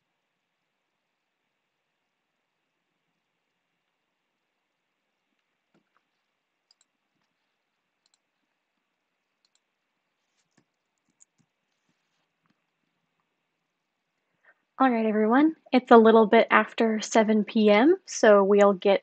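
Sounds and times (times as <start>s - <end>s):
computer mouse clicks: 5.4s - 7.4s, 8.0s - 8.4s, 9.4s - 12.8s.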